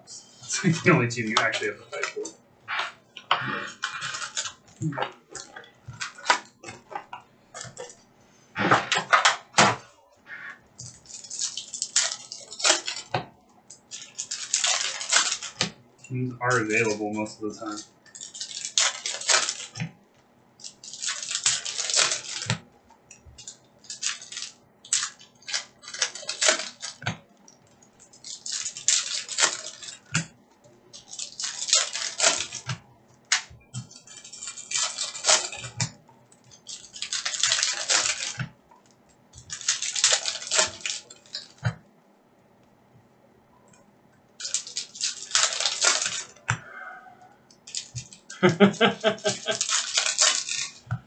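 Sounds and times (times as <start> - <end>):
foil wrappers crinkling and tearing: 0.4 - 2.3, 3.5 - 8.0, 10.7 - 15.8, 16.4 - 19.9, 20.6 - 22.7, 23.3 - 27.1, 27.7 - 41.6, 44.4 - 46.5, 47.6 - 50.9.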